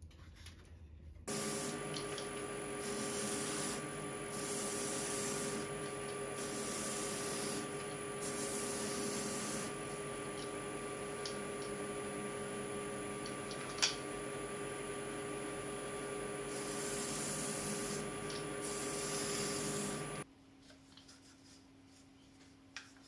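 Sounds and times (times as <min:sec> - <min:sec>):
lathe motor humming: 0:01.3 - 0:20.2
sanding pad rasping on wood: 0:02.6 - 0:10.1, 0:16.4 - 0:20.2.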